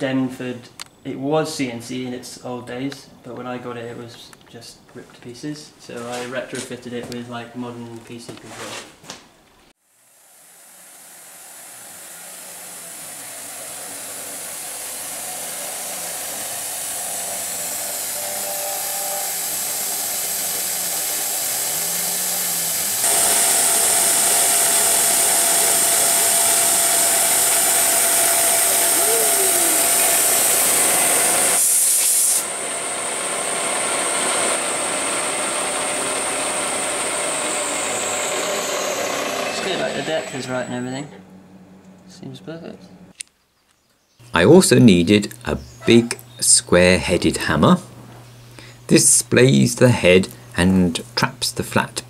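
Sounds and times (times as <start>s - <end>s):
milling machine cutting steel: 10.3s - 41.1s.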